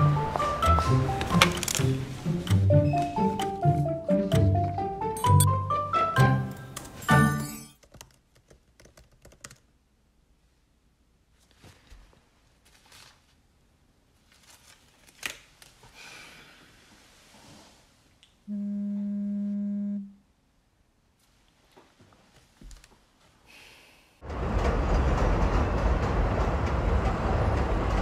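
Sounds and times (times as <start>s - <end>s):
laptop keyboard typing: 7.8s - 9.7s.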